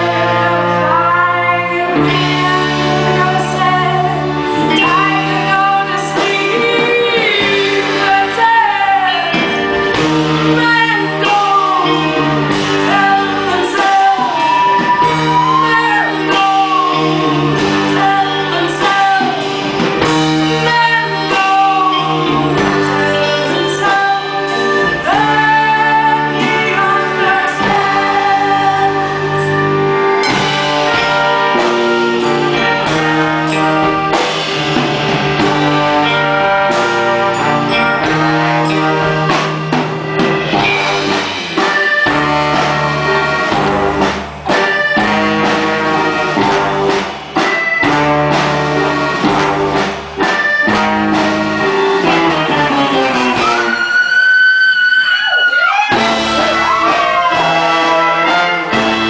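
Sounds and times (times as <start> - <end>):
woman singing: 0.0 - 9.7, 10.5 - 19.6, 20.4 - 29.8
drums: 0.0 - 59.0
guitar: 0.0 - 59.0.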